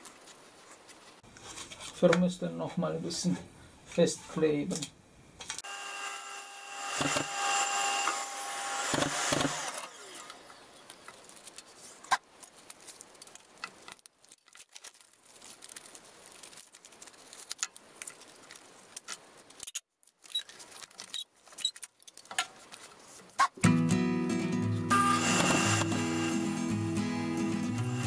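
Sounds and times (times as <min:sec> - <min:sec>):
band saw cutting: 0:05.6 - 0:10.4, 0:24.9 - 0:28.0.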